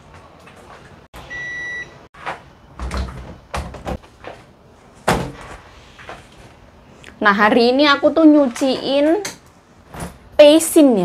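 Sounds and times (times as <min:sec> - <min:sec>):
appliance beep: 0:01.2 - 0:02.1.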